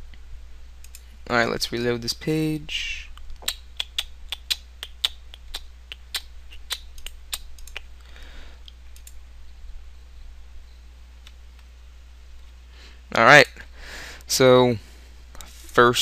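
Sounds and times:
faint low hum: 0:00.0 - 0:16.0
keyboard and mouse clicks: 0:03.2 - 0:07.9.

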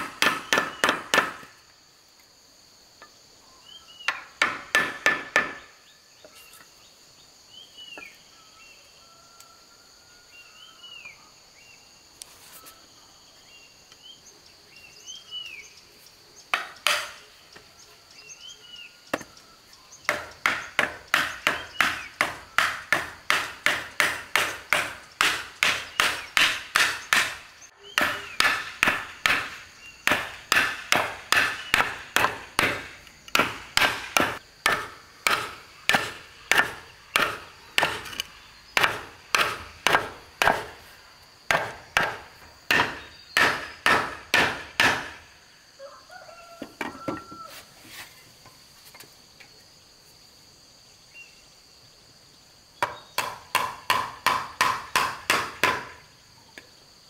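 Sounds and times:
hand tool striking wood: 0:00.0 - 0:01.5, 0:04.1 - 0:05.7, 0:16.5 - 0:17.2, 0:20.1 - 0:40.8, 0:41.5 - 0:45.2, 0:52.8 - 0:56.0
birds chirping: 0:13.4 - 0:22.8, 0:42.9 - 0:43.9.

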